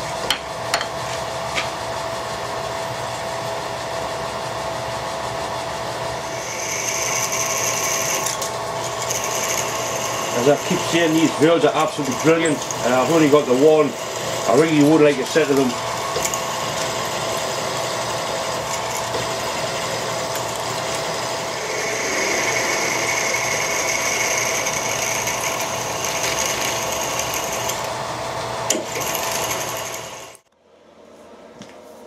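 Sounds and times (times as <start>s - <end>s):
milling machine whir: 2.4s - 30.5s
drill cutting whine: 6.2s - 27.9s, 28.7s - 30.5s.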